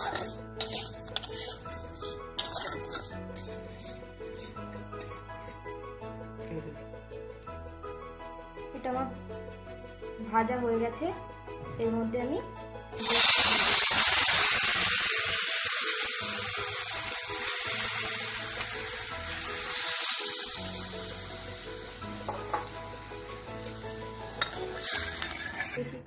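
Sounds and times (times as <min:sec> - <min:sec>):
milk sizzling in hot fat: 0:00.0 - 0:05.2, 0:13.0 - 0:25.8.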